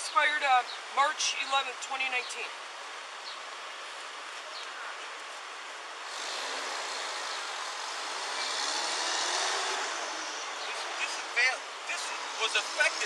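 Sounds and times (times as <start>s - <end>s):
passing vehicle: 6.0s - 13.0s.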